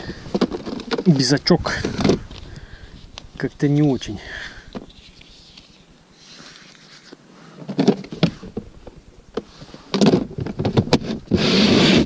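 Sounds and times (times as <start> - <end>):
plastic box clicks and rustles: 0.2 - 2.4, 7.6 - 11.3.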